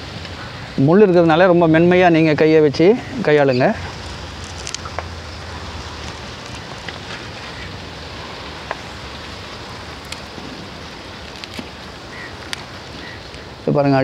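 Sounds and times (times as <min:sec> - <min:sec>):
faint clicks and ticks: 0:03.3 - 0:05.2, 0:10.0 - 0:10.3.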